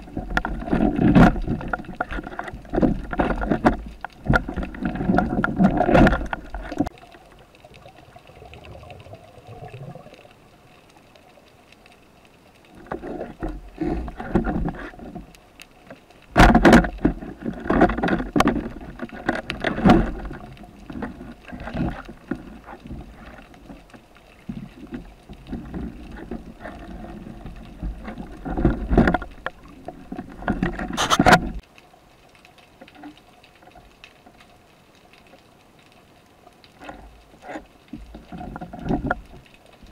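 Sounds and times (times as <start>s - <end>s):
sharp clicks and knocks: 0.0s - 7.0s, 12.7s - 31.6s
water sloshing and bubbling: 0.0s - 39.9s.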